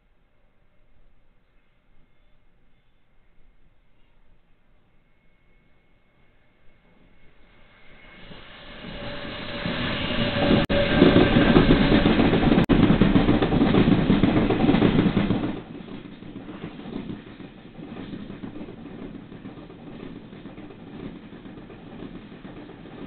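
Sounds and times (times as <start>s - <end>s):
train wheels rumbling on rails: 6.8s - 23.0s.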